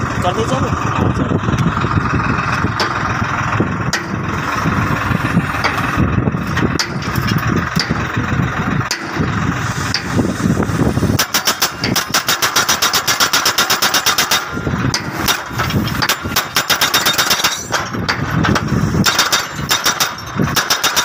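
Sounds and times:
tractor engine running: 0.0 - 21.0
hydraulic hammer pounding steel post: 2.6 - 3.1, 3.8 - 4.7, 5.4 - 8.2, 8.8 - 10.4, 11.0 - 21.0
metal knocks: 3.9 - 4.4, 5.6 - 8.1, 8.9 - 9.3, 11.2 - 21.0.

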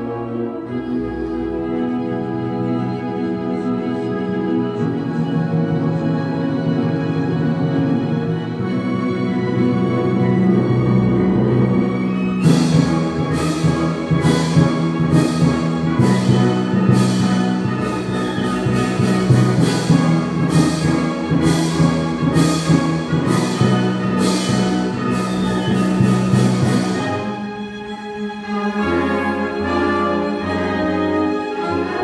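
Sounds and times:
sustained low string notes: 0.0 - 32.0.

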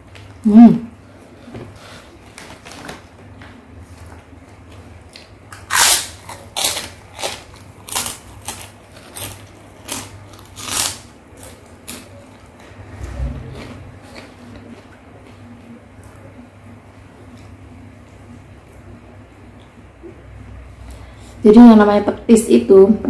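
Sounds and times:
cracker crunching being chewed: 4.0 - 12.7, 13.5 - 16.4.

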